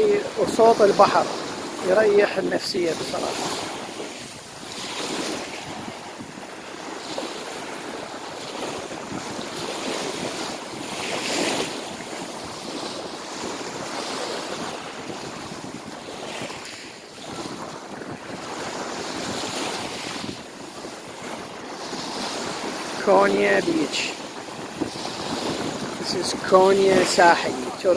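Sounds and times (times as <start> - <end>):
waves washing over pebble beach: 0.0 - 27.9.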